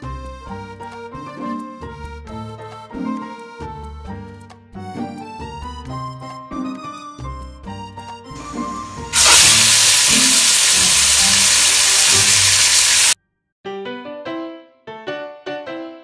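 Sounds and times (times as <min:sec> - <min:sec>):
light background music: 0:00.0 - 0:09.2
chicken sizzling in pot: 0:08.4 - 0:13.2.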